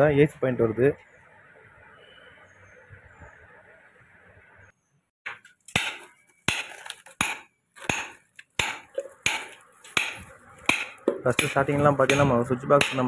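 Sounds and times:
sharp knocks with clinking ring: 0:05.8 - 0:13.0.

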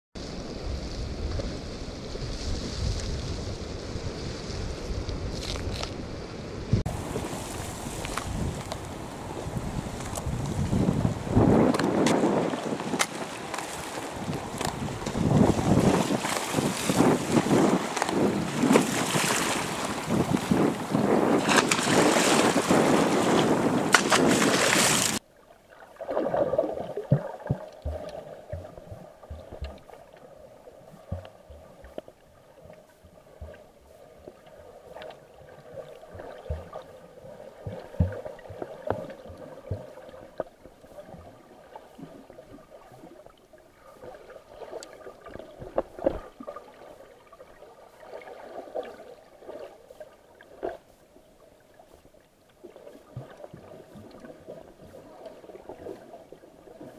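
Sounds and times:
muffled underwater water movement: 0:00.2 - 0:56.9
sea water splashing on concrete: 0:11.6 - 0:25.2.

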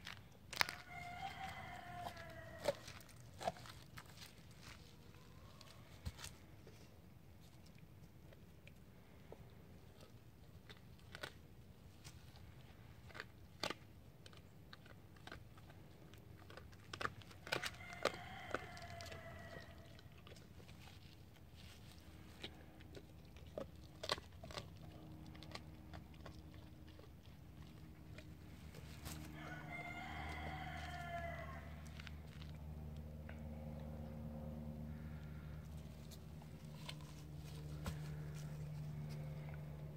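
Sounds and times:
bone cracking: 0:00.0 - 0:04.8, 0:12.0 - 0:21.0
dog gnawing bone: 0:00.0 - 0:04.9, 0:08.2 - 0:39.9
rooster crowing: 0:00.6 - 0:03.1, 0:17.5 - 0:20.0, 0:29.0 - 0:32.1.

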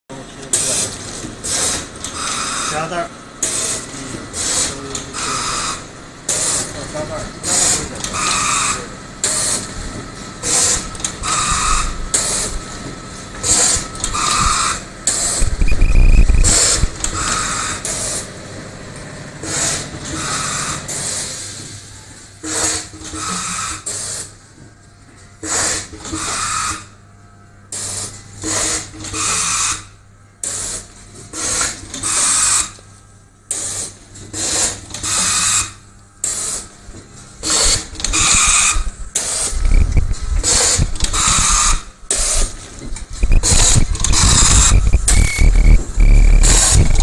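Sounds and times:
machine humming: 0:10.4 - 0:17.8, 0:37.5 - 0:47.0
sharp mechanical bursts: 0:13.4 - 0:18.2, 0:37.4 - 0:47.0.

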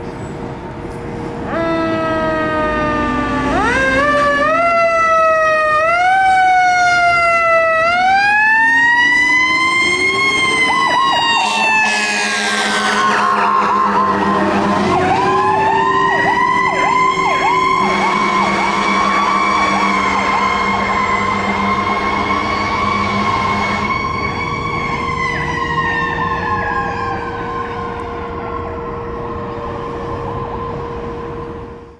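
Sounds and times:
low horn blast: 0:01.4 - 0:05.8, 0:11.3 - 0:25.6
electronic siren yelping: 0:01.5 - 0:31.7.

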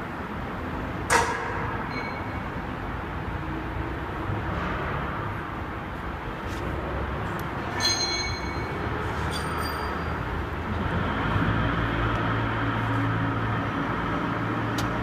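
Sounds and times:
short ringing clack: 0:01.1 - 0:02.5, 0:07.7 - 0:10.1
electric pallet truck rumble: 0:07.0 - 0:15.0.

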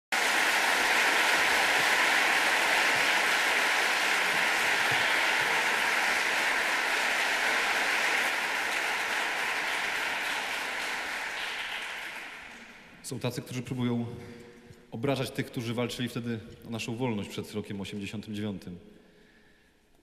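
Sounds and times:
audience applauding: 0:00.0 - 0:13.0.

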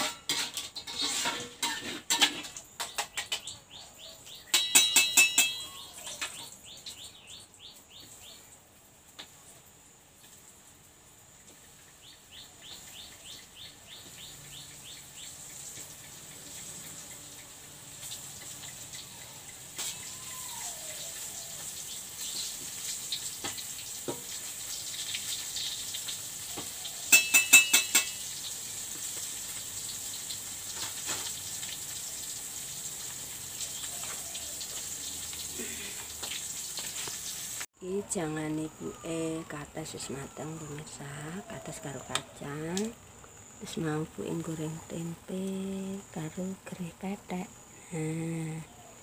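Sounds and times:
fish sizzling in hot oil: 0:00.0 - 0:37.7.

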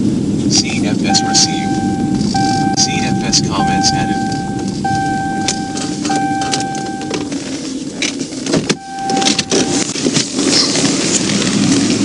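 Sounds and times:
vehicle and road noise: 0:00.0 - 0:12.0
electronic tone beeping: 0:01.1 - 0:07.4, 0:08.7 - 0:09.9.

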